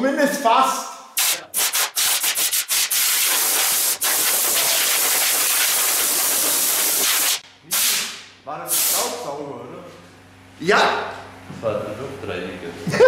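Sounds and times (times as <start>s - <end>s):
compressed air blow gun hissing: 1.2s - 8.0s.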